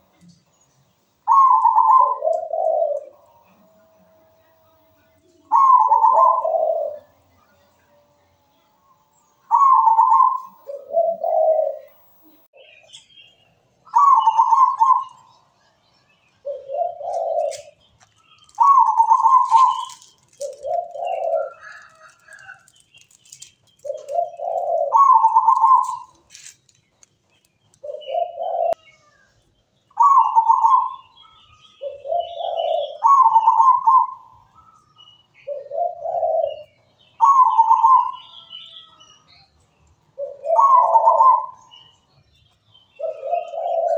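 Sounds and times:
dove cooing: 1.2s - 8.7s, 9.4s - 12.7s, 13.9s - 15.3s, 16.4s - 17.8s, 18.4s - 22.7s, 23.8s - 26.2s, 27.8s - 28.8s, 30.0s - 31.1s, 31.8s - 34.3s, 35.4s - 38.2s, 40.2s - 41.8s, 42.9s - 43.9s.

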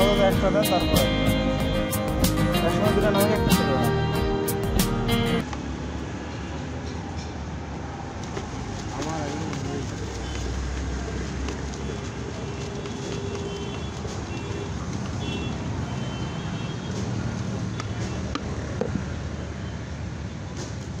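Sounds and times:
street traffic: 0.0s - 21.0s.

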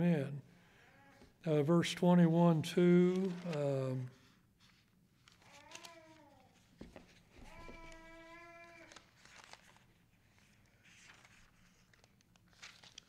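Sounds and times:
book pages turning: 3.0s - 13.0s.

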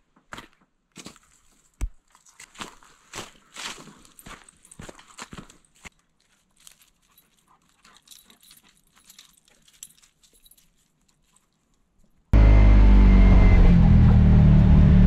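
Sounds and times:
dog moving with clicks: 6.6s - 11.8s.

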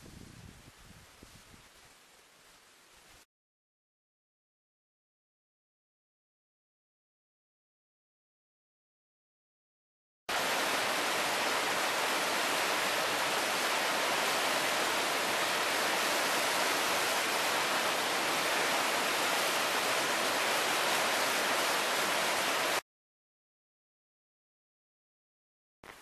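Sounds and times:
river rushing over rapids: 10.3s - 22.8s.

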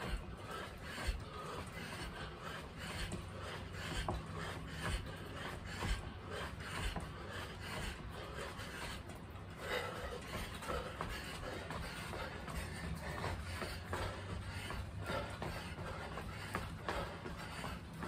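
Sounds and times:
feet scuffing on artificial turf: 10.7s - 18.0s.

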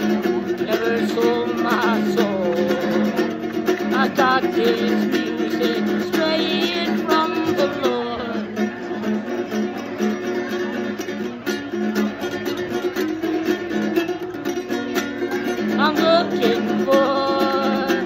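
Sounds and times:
man singing wordlessly: 0.0s - 9.0s, 15.7s - 18.0s
acoustic guitar strumming: 0.0s - 18.0s.

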